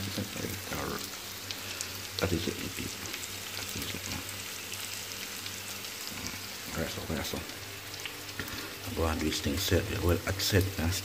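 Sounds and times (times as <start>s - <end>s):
food sizzling in a pot: 0.0s - 11.0s.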